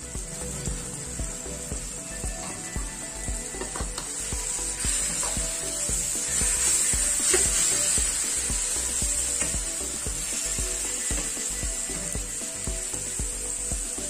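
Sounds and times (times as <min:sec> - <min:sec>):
background music: 0:00.0 - 0:14.0
noodles sizzling in a pan: 0:00.0 - 0:14.0.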